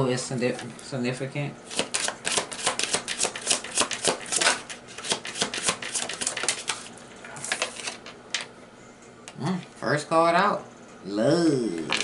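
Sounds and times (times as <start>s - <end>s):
cards being shuffled: 1.7s - 8.1s.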